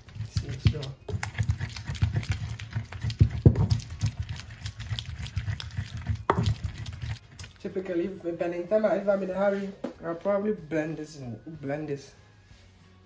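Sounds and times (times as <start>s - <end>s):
wooden pestle mashing in bowl: 0.0s - 8.1s.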